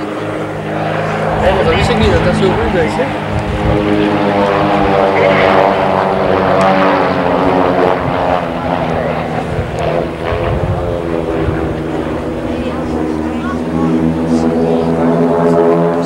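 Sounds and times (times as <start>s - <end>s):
propeller biplanes droning: 0.0s - 16.0s.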